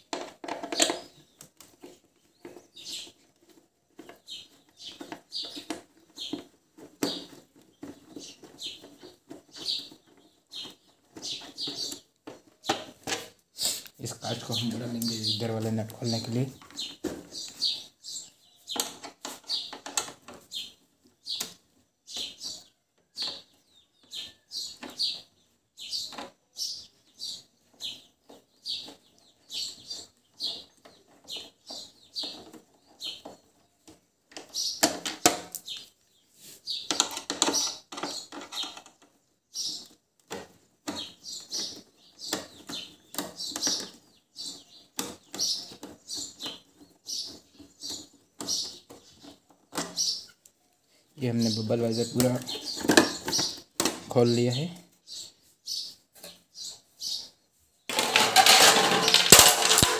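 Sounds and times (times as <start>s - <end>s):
parts scraping and rattling: 0.0s - 20.8s, 36.5s - 50.4s, 51.2s - 54.6s, 57.8s - 59.9s.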